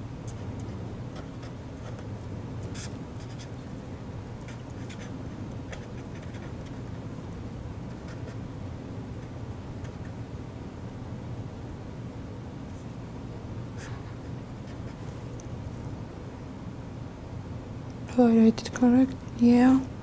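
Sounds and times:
steady low hum: 0.0s - 20.0s
pen scratching on paper: 2.7s - 3.5s, 4.5s - 6.9s.

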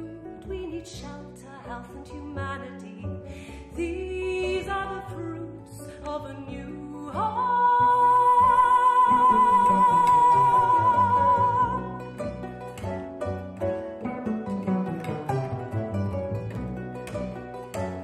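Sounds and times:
woman singing: 0.0s - 12.1s
double bass: 0.0s - 18.0s
kora: 0.0s - 18.0s.

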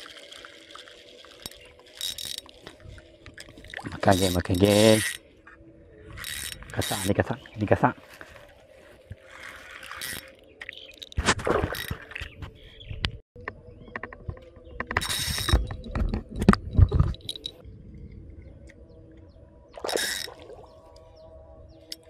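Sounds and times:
fishing reel gears ticking: 0.0s - 5.2s, 6.1s - 7.2s, 9.3s - 11.2s, 15.0s - 15.6s, 17.2s - 17.6s, 19.9s - 20.3s.

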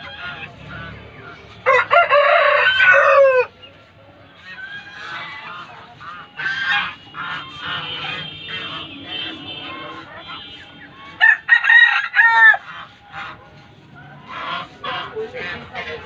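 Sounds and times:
chickens clucking: 0.0s - 16.0s
rooster crowing: 1.6s - 3.5s, 11.2s - 12.7s.

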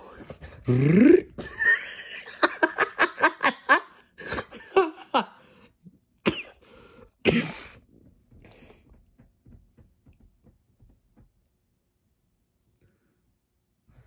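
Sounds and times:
breathy voice sound: 0.0s - 1.6s.

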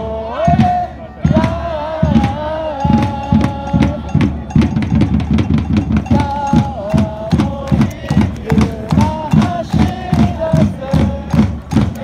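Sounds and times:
crowd chanting: 0.0s - 12.0s
fast drum beat: 0.5s - 12.0s.

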